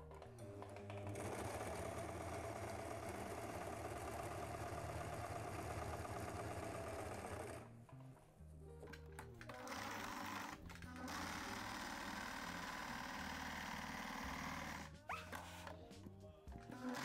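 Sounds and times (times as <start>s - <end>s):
electric sewing machine stitching: 0.3s - 7.7s, 9.4s - 15.7s, 16.7s - 17.0s.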